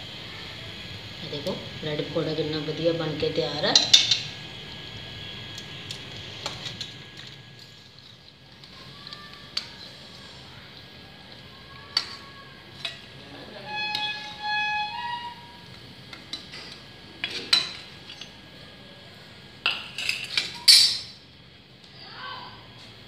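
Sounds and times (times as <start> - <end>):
held ringing tones: 13.6 - 15.8.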